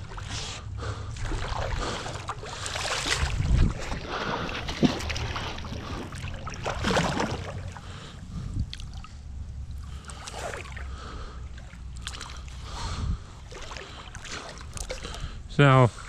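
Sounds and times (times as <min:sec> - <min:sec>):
water splashing and dripping: 0:00.0 - 0:08.0, 0:08.6 - 0:12.8, 0:13.4 - 0:15.3
wet rope hauled from water: 0:01.2 - 0:07.8, 0:10.0 - 0:10.9, 0:13.4 - 0:15.2.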